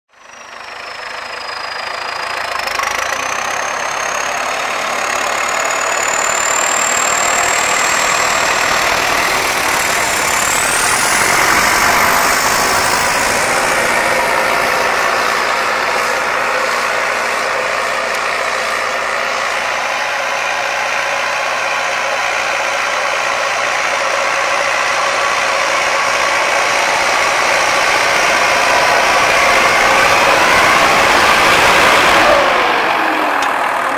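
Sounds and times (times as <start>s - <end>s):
tractor diesel engine running: 0.1s - 33.9s
thin high whistle: 0.2s - 20.1s.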